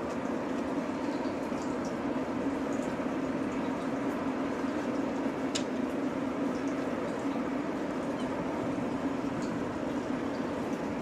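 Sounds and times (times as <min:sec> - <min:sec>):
ship engines droning: 0:00.0 - 0:11.0.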